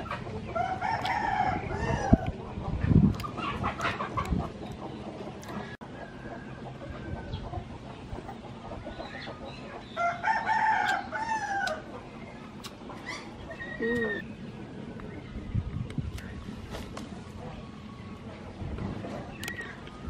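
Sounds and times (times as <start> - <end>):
rooster crowing: 0.6 - 2.3, 10.0 - 11.8.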